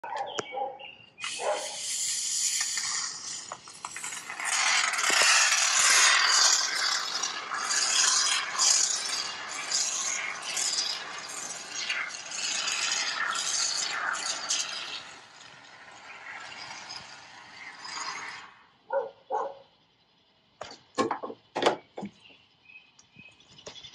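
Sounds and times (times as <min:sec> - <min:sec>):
spray foam hissing and sputtering: 0:01.2 - 0:18.6.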